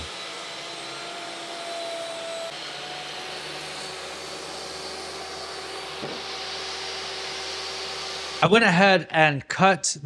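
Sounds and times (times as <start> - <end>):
electric power tool whirring: 0.0 - 8.4.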